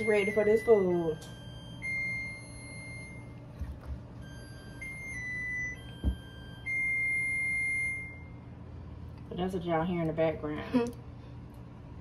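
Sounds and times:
oven alarm beeping: 0.0s - 8.8s.

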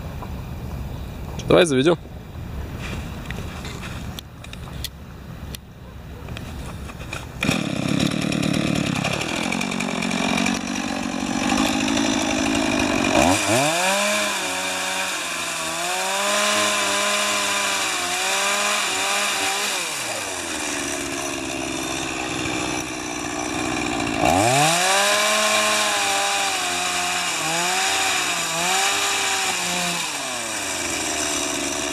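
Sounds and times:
chainsaw engine ice auger drilling: 7.0s - 31.9s.

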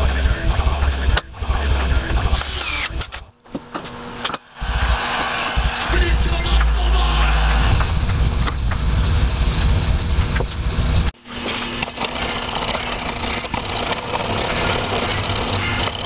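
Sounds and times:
power tool motor running: 2.4s - 3.0s, 11.4s - 16.0s.

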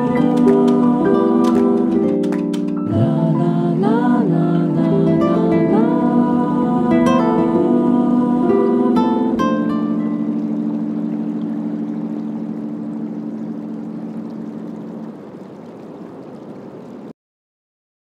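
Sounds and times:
steady noise: 0.0s - 17.0s
plucked-string chord ringing: 4.6s - 14.3s.

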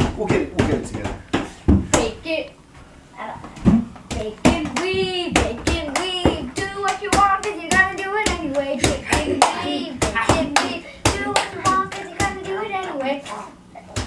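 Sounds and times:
hands clapping beat: 4.1s - 13.0s.

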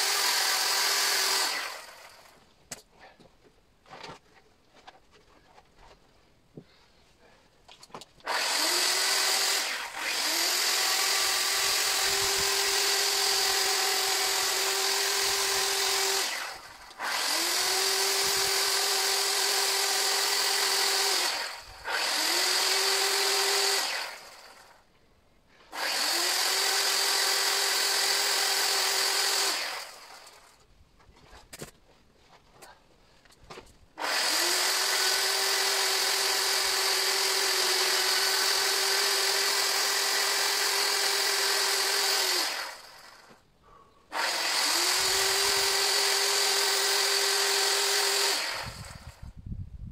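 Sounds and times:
electric chainsaw whine: 0.0s - 2.4s, 8.2s - 24.9s, 25.7s - 30.6s, 34.0s - 49.4s.

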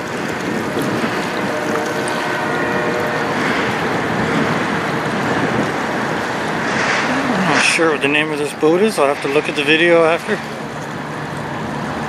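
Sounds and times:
wind on microphone: 0.0s - 8.2s
bow wake splashing: 0.0s - 12.0s
train noise: 0.0s - 12.0s
tugboat running: 0.0s - 12.0s.

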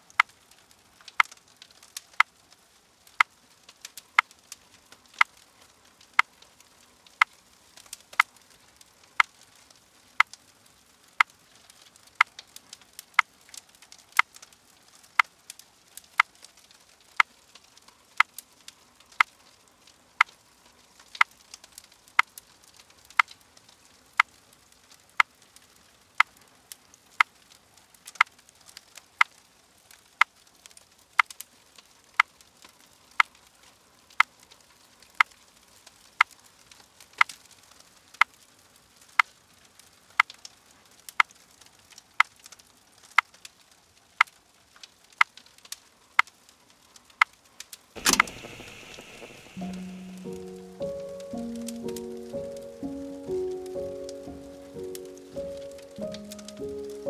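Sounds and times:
faint crackles: 0.0s - 57.0s
steady ticking: 48.0s - 57.0s.

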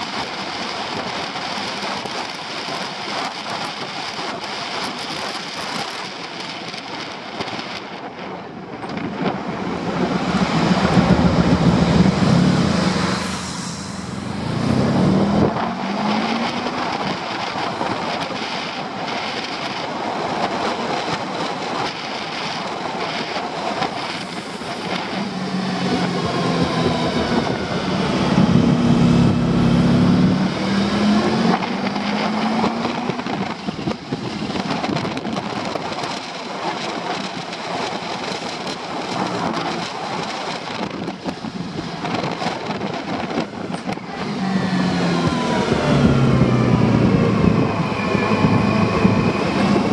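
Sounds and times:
wind rushing over camera: 0.0s - 49.9s
motorcycle engine humming: 8.3s - 18.6s, 23.7s - 35.1s, 43.0s - 49.9s.

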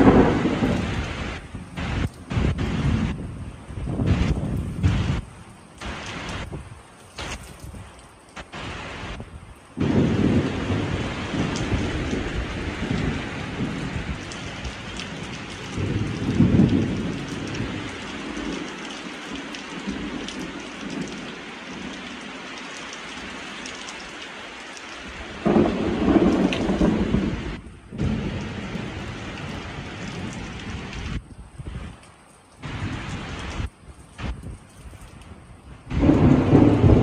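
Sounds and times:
rolling thunder: 0.0s - 6.6s, 9.8s - 18.7s, 25.4s - 31.2s, 35.8s - 37.0s
heavy rain hissing: 0.0s - 32.0s, 32.6s - 34.5s, 35.1s - 37.0s.

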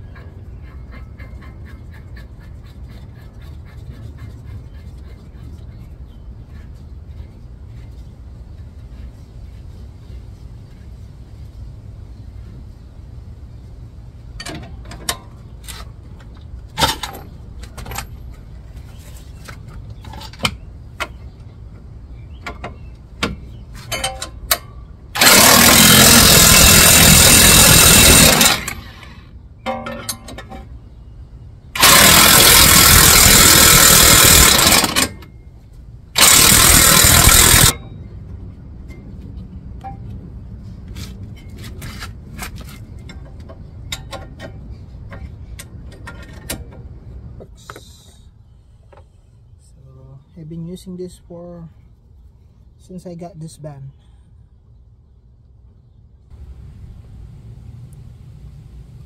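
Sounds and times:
impact wrench bursts: 25.2s - 29.3s, 31.8s - 35.3s, 36.2s - 37.8s.

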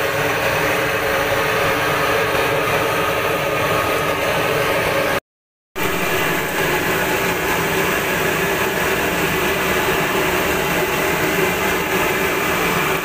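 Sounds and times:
hot oil sizzling in a wok: 5.8s - 13.0s.

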